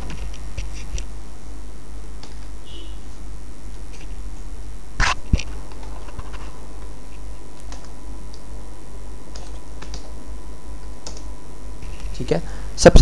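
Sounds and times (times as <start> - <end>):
low electrical hum: 0.0 - 13.0
computer keyboard keystrokes: 7.6 - 8.4, 9.3 - 10.1, 11.0 - 11.3.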